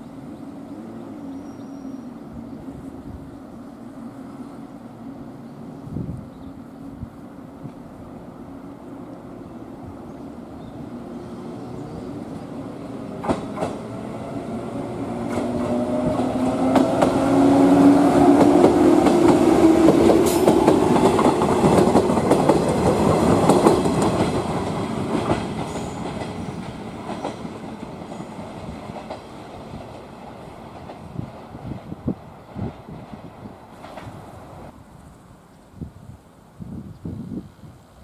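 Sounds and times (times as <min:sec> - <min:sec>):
electric train passing: 0:00.0 - 0:36.6
wheels clicking over rail joints: 0:18.2 - 0:31.8.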